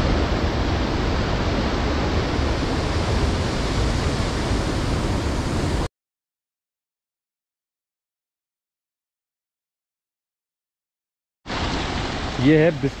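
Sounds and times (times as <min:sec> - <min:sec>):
stream rushing: 0:00.0 - 0:05.9, 0:11.5 - 0:13.0.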